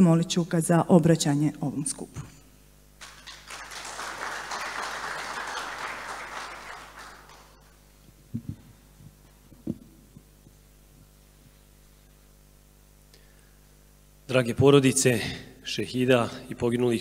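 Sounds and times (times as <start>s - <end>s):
faint steady hum: 0.0s - 17.0s
audience applauding: 3.0s - 7.8s.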